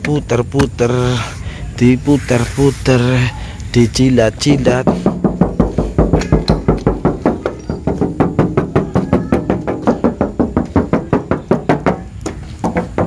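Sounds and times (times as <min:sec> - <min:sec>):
fingers tapping on metal panels: 0:04.6 - 0:13.0.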